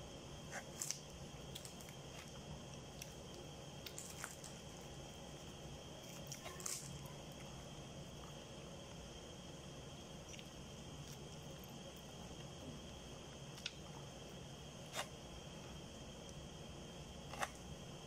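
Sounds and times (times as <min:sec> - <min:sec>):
faint steady hiss: 0:00.0 - 0:18.0
chewing crackles: 0:00.5 - 0:09.0, 0:10.2 - 0:14.2.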